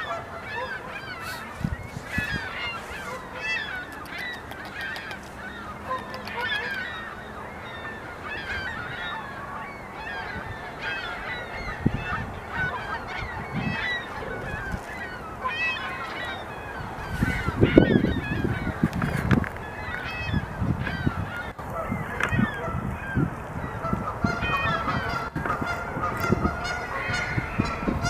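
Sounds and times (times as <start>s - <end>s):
flock of birds calling: 0.0s - 28.0s
beavers gnawing bark: 1.1s - 7.2s.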